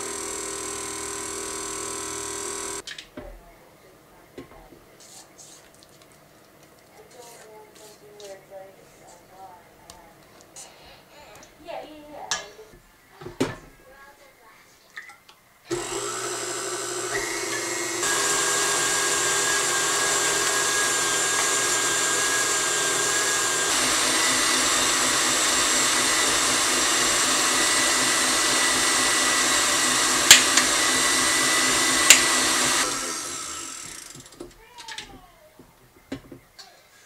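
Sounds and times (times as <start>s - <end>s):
stand mixer motor whine: 0.0s - 2.8s, 15.7s - 34.4s.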